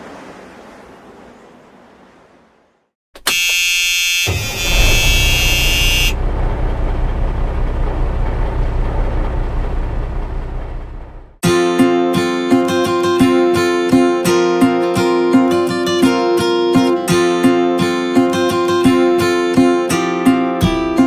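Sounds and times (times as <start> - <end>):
high-pitched buzzer tone: 3.2 - 6.2
snow groomer engine rumbling: 4.3 - 11.4.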